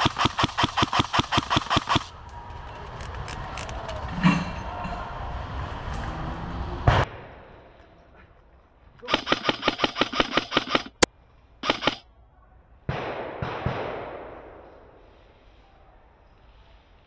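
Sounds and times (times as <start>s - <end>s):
airsoft rifle firing bursts: 0.0s - 2.1s, 9.0s - 12.0s
noisy rush: 9.0s - 12.0s.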